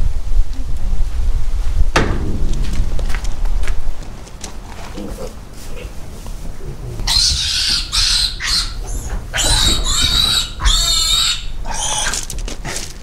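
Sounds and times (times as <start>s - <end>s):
piglet squealing: 7.0s - 12.3s.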